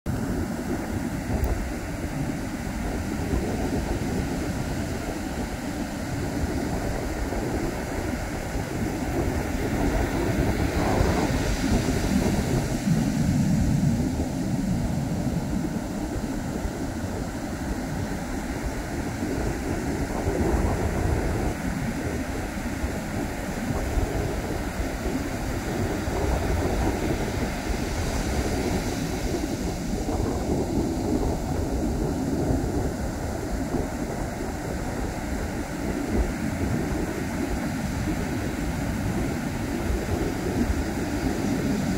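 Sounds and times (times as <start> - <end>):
surf washing: 0.1 - 41.9
wind buffeting microphone: 0.1 - 41.9.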